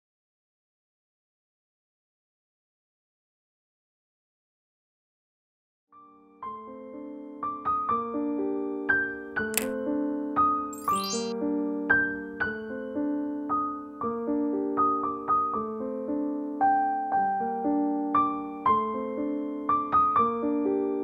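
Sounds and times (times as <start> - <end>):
gentle piano music: 6.0 - 21.0.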